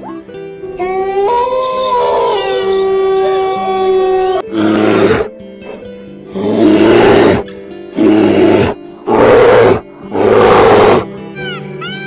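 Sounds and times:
background music: 0:00.0 - 0:12.0
large animal roaring: 0:03.8 - 0:05.3, 0:06.3 - 0:11.1.

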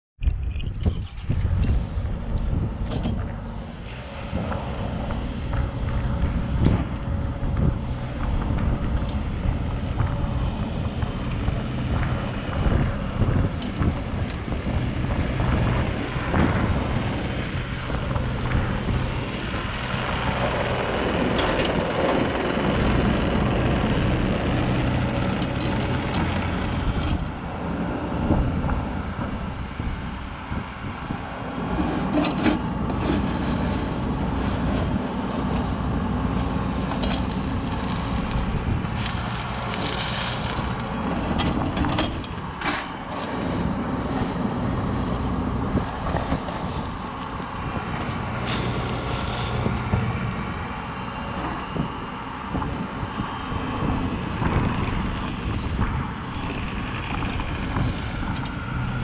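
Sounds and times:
wind buffeting microphone: 0:00.2 - 0:59.0
excavator diesel engine running: 0:01.0 - 0:59.0
bucket digging into gravel: 0:36.5 - 0:41.0, 0:48.4 - 0:49.9.

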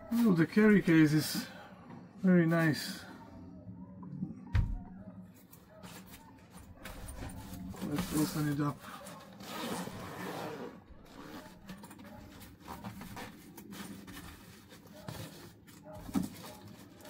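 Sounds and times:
bag rustling: 0:06.7 - 0:17.0
zipper being pulled open: 0:09.3 - 0:11.8.

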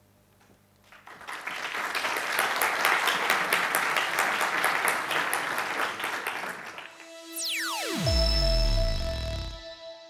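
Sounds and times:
audience clapping: 0:00.8 - 0:07.6.

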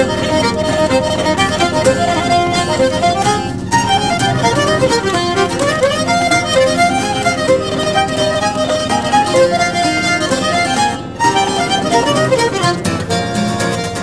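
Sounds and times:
lively fiddle tune: 0:00.0 - 0:14.0.

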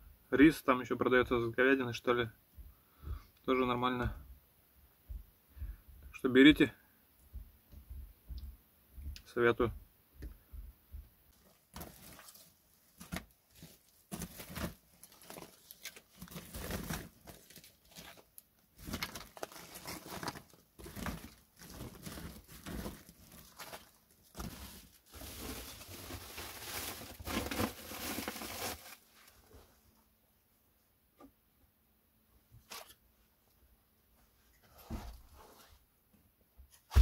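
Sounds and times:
plastic sack crinkling: 0:11.4 - 0:29.4
wood chips rustling and clattering: 0:11.7 - 0:29.2.

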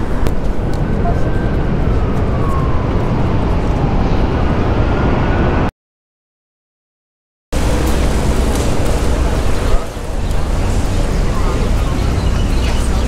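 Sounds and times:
wind buffeting microphone: 0:00.0 - 0:05.7, 0:07.6 - 0:13.0.

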